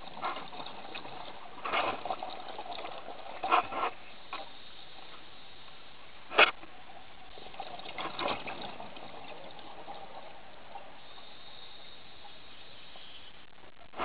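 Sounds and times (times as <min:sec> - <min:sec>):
gurgling rush of bubbles: 0:00.0 - 0:13.2
steady hiss: 0:00.0 - 0:14.0.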